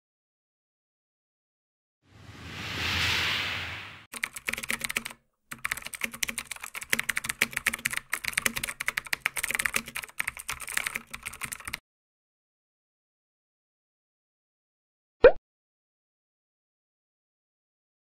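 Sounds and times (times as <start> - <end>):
keyboard typing clicks: 4.1 - 11.8.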